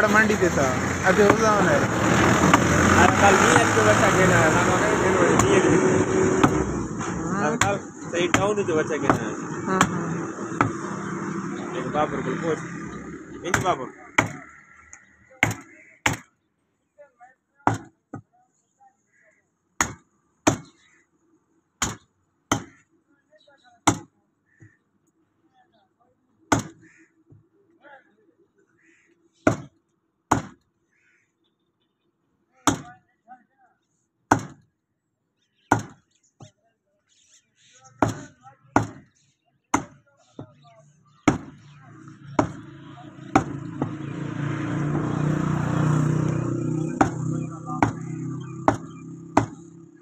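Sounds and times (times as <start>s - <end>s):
vehicle engine passing: 0.0s - 14.8s, 41.9s - 50.0s
cleaver chopping meat on wood: 2.2s - 3.8s, 5.0s - 6.8s, 7.6s - 10.9s, 13.5s - 14.6s, 15.4s - 16.3s, 17.6s - 18.3s, 19.8s - 20.8s, 21.8s - 22.8s, 23.8s - 24.1s, 26.5s - 26.8s, 29.4s - 30.6s, 32.6s - 33.0s, 34.3s - 34.6s, 35.7s - 36.5s, 38.0s - 39.1s, 39.7s - 40.6s, 41.2s - 44.2s, 46.8s - 49.7s.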